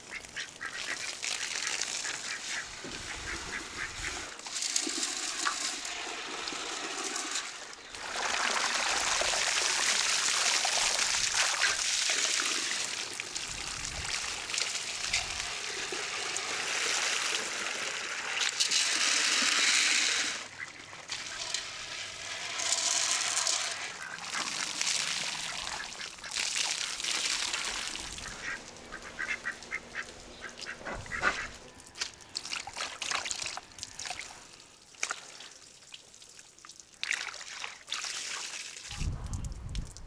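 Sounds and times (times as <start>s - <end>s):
waterfowl calling: 0.0s - 4.4s, 20.4s - 21.7s, 23.7s - 31.8s
water gushing from hose into pots: 0.0s - 39.8s.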